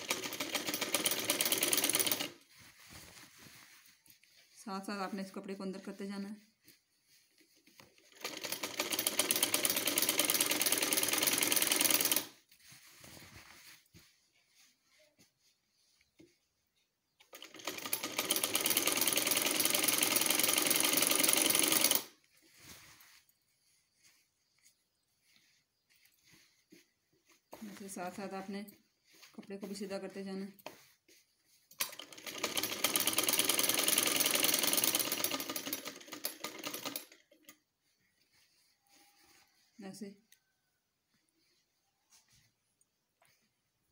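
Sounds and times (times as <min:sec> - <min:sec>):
sewing machine clattering: 0:00.0 - 0:02.4, 0:07.8 - 0:12.4, 0:17.2 - 0:22.1, 0:31.7 - 0:37.6.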